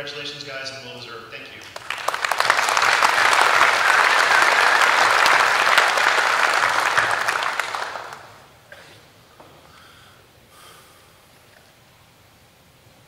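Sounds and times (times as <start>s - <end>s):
audience applauding: 1.6s - 8.5s.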